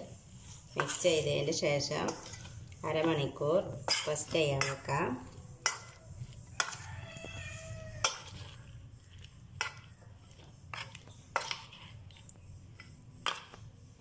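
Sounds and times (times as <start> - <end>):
squelching paste: 0.0 - 14.0
spoon clinking against bowl: 3.8 - 6.8.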